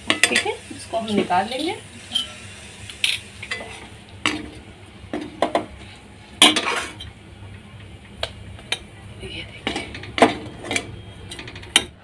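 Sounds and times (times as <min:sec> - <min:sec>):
metal skimmer clanking on metal pan: 0:00.0 - 0:02.4, 0:06.4 - 0:07.1.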